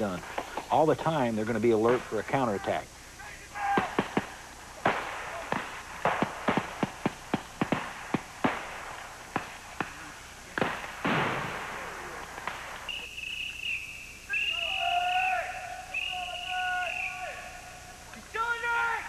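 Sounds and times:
rifle shots: 3.7s - 12.9s
mouth-blown signal call blasts: 12.8s - 19.0s.

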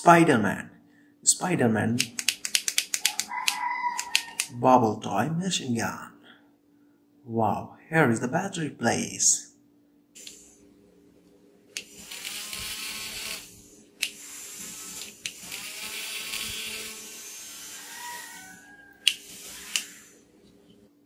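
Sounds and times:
sharp clicks: 2.0s - 4.5s
toy motor whirring: 2.0s - 4.5s, 11.7s - 20.3s.

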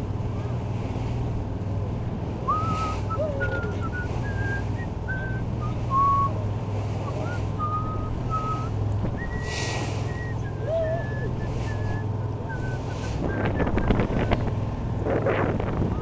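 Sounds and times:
boat engine droning: 0.0s - 16.0s
wind gust on microphone: 11.2s - 16.0s.

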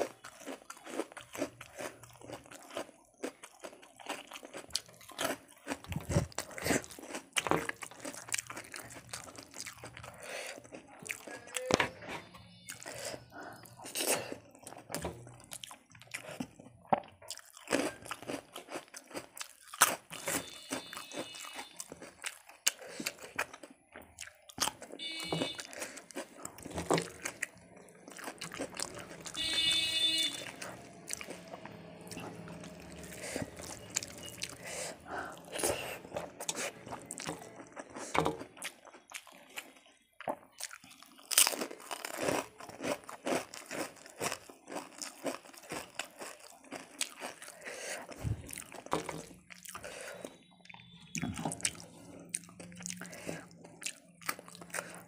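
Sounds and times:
crunchy wet chewing: 0.0s - 55.0s.

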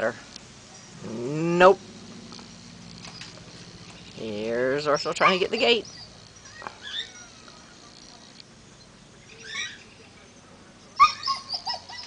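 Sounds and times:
dog whining: 5.1s - 6.1s, 11.0s - 12.0s.

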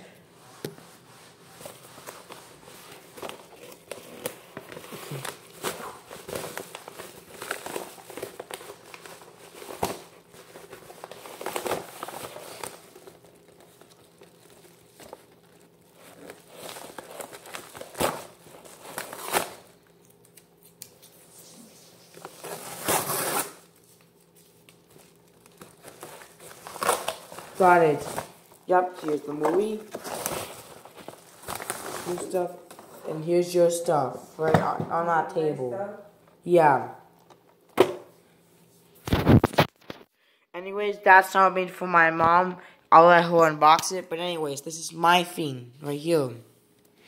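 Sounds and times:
packaging rustling and crinkling: 0.9s - 33.1s, 39.0s - 40.1s.

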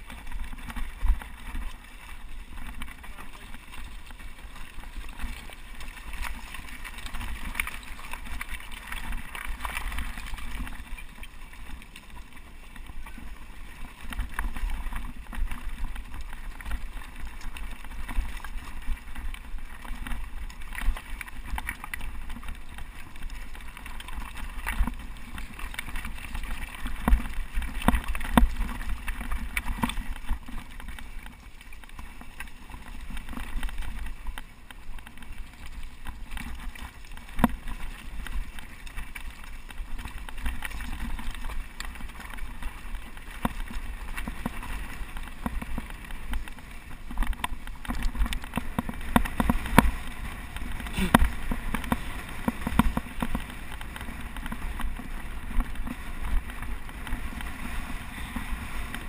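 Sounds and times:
mountain bike rattling over rocks: 0.0s - 59.0s.

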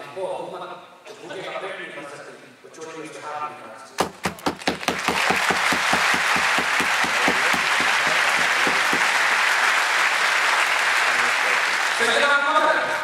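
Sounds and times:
audience applauding: 4.3s - 12.7s.

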